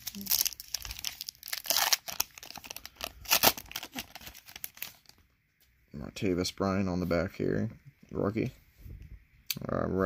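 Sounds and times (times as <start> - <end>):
wrapper tearing and crinkling: 0.0 - 5.2.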